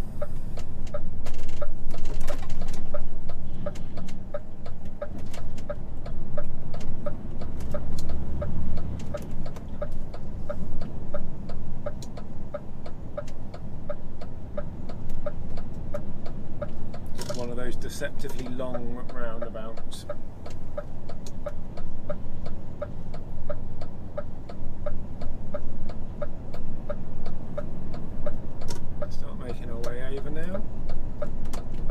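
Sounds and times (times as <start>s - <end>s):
diesel engine rumble: 0.0s - 31.9s
turn signal ticking: 0.0s - 31.9s.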